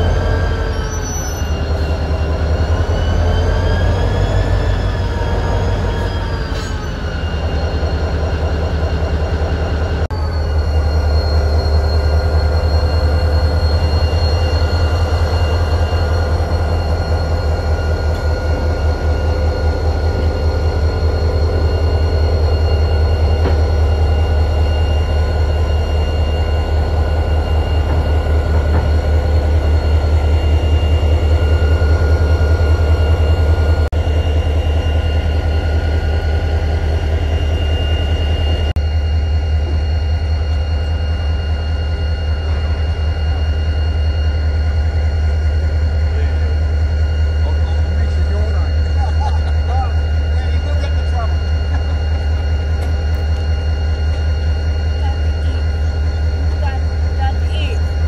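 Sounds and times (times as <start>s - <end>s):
locomotive engine throbbing: 0.0s - 58.0s
thin steady whine: 7.0s - 58.0s.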